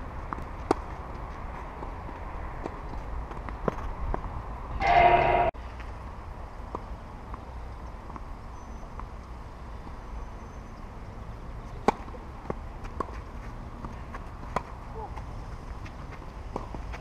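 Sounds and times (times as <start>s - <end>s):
tennis ball bouncing on clay: 0.2s - 4.4s, 11.7s - 17.0s
racket hitting tennis ball: 4.8s - 5.6s.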